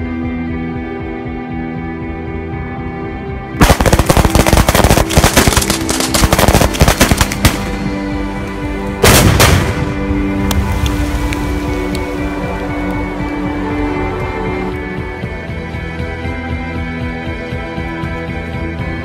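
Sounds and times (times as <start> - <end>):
background music: 0.0 - 19.0
heavy firework blast: 3.6 - 7.9, 9.0 - 10.3
rapid firecracker cracks: 3.6 - 7.9, 9.0 - 10.1.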